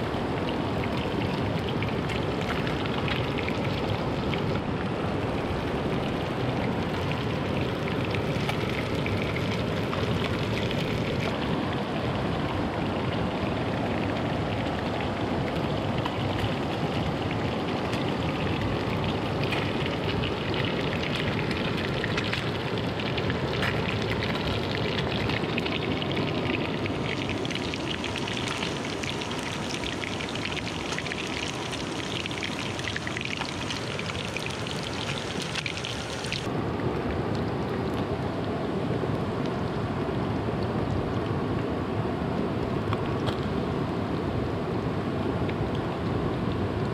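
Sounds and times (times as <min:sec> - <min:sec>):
stream water rushing: 0:00.0 - 0:36.9.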